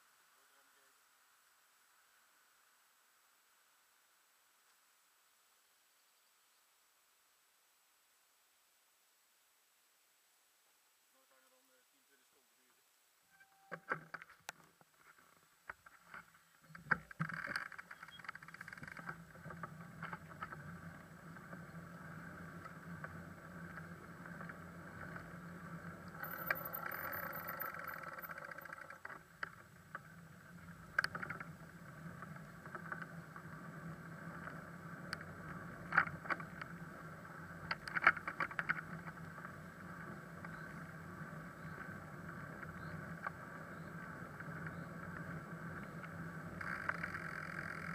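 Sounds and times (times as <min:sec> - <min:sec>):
bicycle tyres rolling on asphalt: 0:14.1 - 0:47.9
bicycle rattling over bumps: 0:15.0 - 0:47.9.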